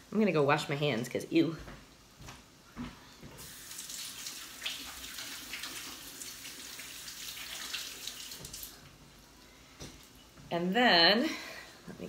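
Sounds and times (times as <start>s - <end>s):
tap water splashing into sink: 3.4s - 8.8s.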